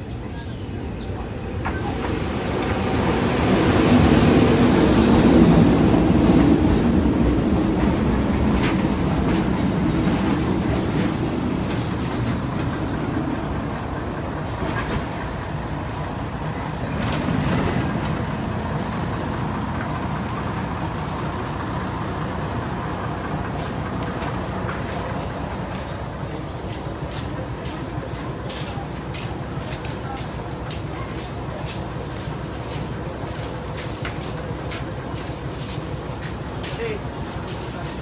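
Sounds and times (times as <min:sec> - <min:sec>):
train wheels rumbling on rails: 0:00.1 - 0:38.0
train wheel squeal: 0:04.7 - 0:06.0, 0:07.7 - 0:13.6.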